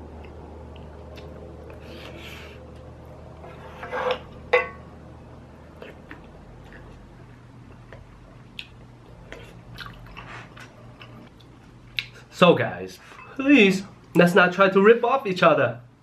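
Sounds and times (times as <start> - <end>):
soft chewing: 0.1 - 3.5, 5.6 - 12.2.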